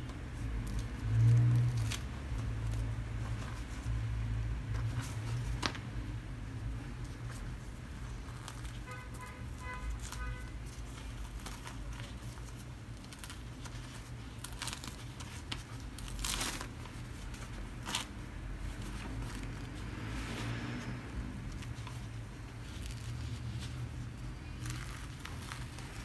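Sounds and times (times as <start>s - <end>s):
papery wrapper rustling: 6.8s - 19.9s, 21.3s - 26.0s.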